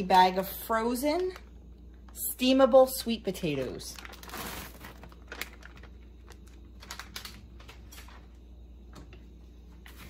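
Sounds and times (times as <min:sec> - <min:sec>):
plastic bag rustling: 0:03.8 - 0:08.3.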